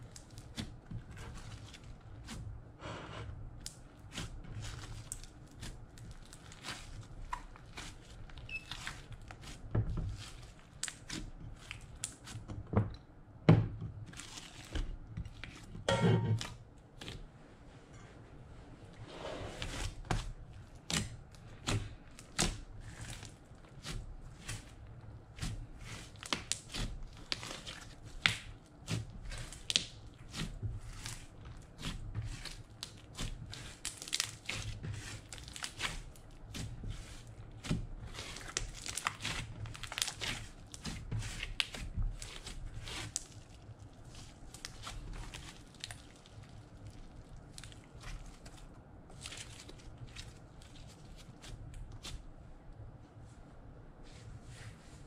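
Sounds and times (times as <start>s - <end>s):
slime crackling and popping: 20.6s - 52.2s.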